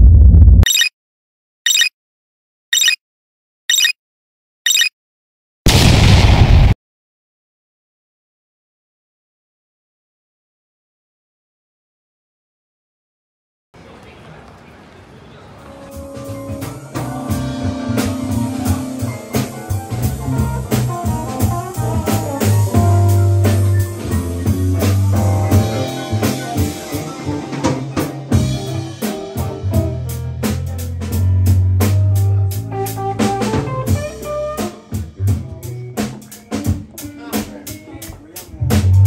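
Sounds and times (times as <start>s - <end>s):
electric bass: 0.0s - 0.7s, 16.4s - 27.0s, 28.4s - 36.1s, 38.5s - 39.0s
keyboard: 15.6s - 39.0s
electric guitar: 16.1s - 30.3s.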